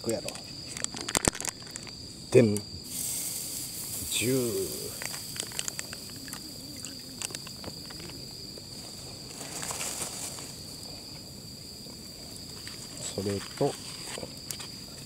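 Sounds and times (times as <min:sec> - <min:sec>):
insect trill: 0:00.0 - 0:15.0
omelette sizzling on grill: 0:02.8 - 0:07.3.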